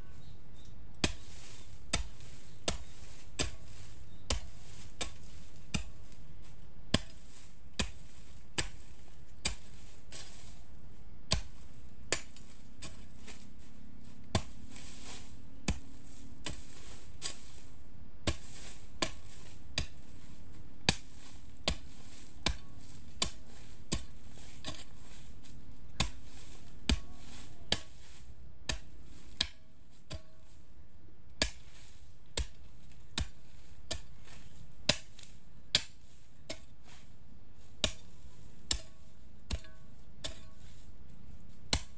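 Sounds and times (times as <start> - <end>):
hoe chopping into dry soil: 0.9 - 41.9.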